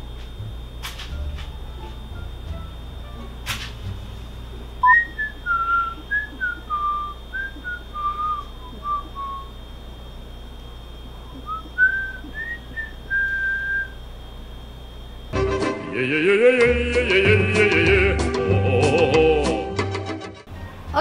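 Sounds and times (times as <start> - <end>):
woman whistling a tune: 4.8 - 9.5, 11.4 - 14.0.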